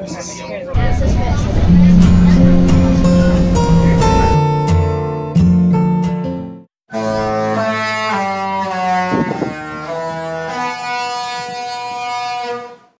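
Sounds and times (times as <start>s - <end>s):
ship's musical horn melody: 1.4s - 4.9s.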